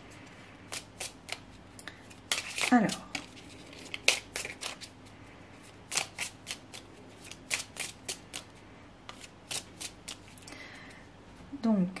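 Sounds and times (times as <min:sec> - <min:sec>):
cards being shuffled: 0:02.1 - 0:04.9, 0:05.9 - 0:08.5, 0:09.1 - 0:10.4.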